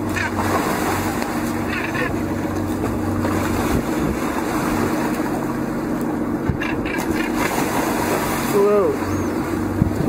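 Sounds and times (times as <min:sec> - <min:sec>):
boat engine humming: 0:00.0 - 0:10.0
water rushing along hull: 0:00.0 - 0:10.0
wind buffeting microphone: 0:01.9 - 0:05.4, 0:06.4 - 0:10.0.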